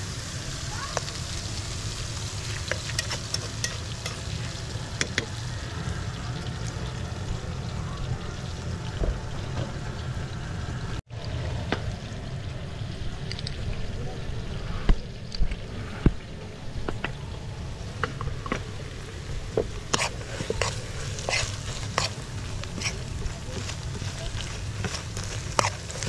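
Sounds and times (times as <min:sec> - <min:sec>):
onions sizzling in oil: 0:00.0 - 0:13.6, 0:16.7 - 0:26.0
low rumble: 0:03.8 - 0:26.0
spoon scraping pan: 0:19.9 - 0:26.0.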